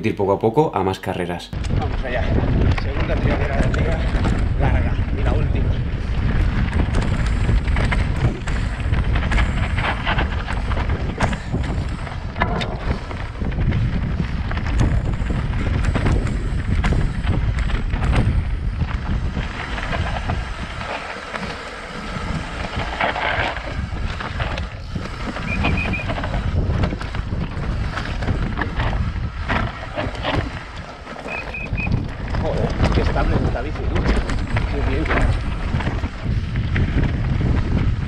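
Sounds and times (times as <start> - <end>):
wind buffeting microphone: 1.5 - 38.0
bike knocking and rattling: 1.6 - 38.0
tyres crunching over stones: 6.1 - 38.0.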